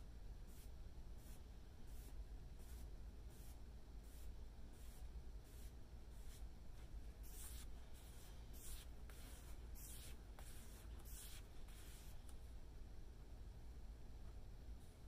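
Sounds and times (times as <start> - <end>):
paintbrush swishing on wood: 7.3 - 12.2.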